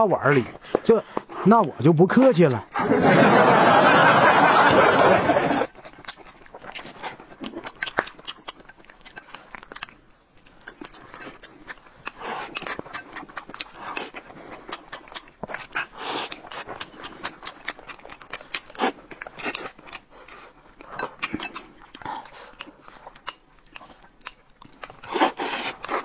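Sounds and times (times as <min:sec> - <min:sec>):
people chewing food: 0:00.0 - 0:26.0.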